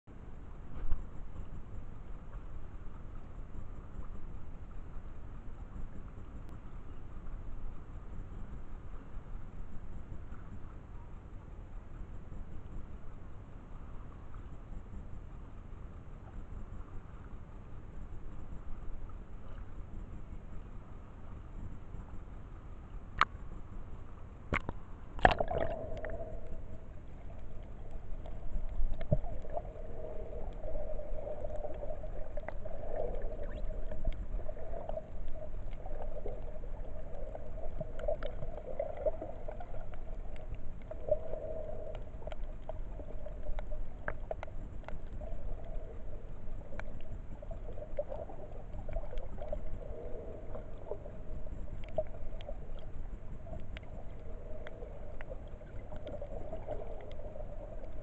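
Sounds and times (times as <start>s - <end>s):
muffled underwater wash: 0.1s - 58.0s
faint clicks: 23.0s - 23.7s, 24.5s - 58.0s
wavering hum: 25.2s - 58.0s.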